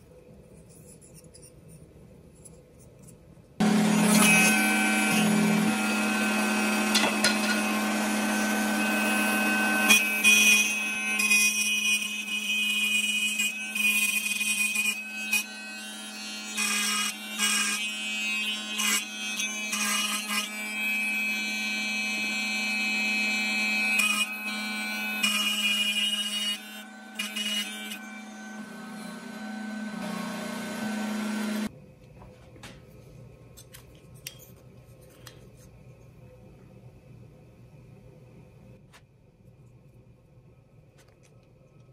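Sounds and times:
table saw running: 3.6s - 13.9s, 14.5s - 31.7s
saw cutting wood: 3.6s - 31.7s
faint handling sounds: 32.0s - 36.2s.

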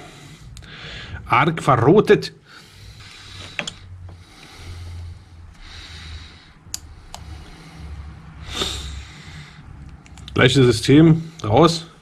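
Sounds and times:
man breathing heavily through nose: 0.0s - 1.3s, 2.4s - 10.1s.

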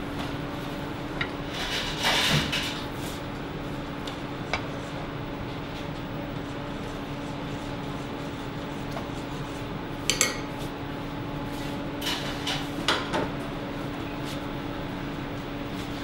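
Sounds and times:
steady low hum: 0.0s - 16.0s
dishes clinking: 10.1s - 10.5s.

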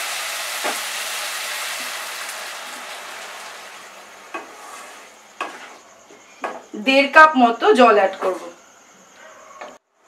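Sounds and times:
water sizzling in hot oil: 0.0s - 5.7s.

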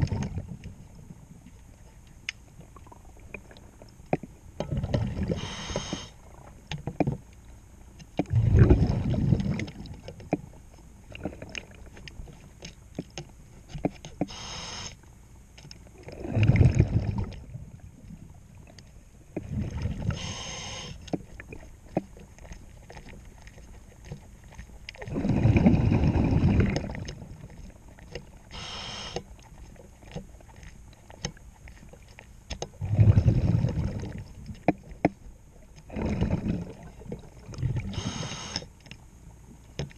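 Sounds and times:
exhaled bubbles rushing underwater: 0.0s - 1.2s, 4.6s - 6.6s, 8.2s - 10.3s, 16.0s - 18.7s, 19.3s - 21.7s, 24.9s - 35.0s, 35.8s - 38.5s
regulator hiss: 5.4s - 6.2s, 14.3s - 15.0s, 20.2s - 21.0s, 28.5s - 29.2s, 37.9s - 38.7s.

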